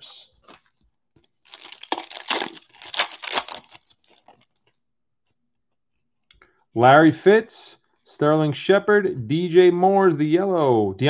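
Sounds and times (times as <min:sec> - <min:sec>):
foil wrapper tearing and crinkling: 0:00.4 - 0:04.6.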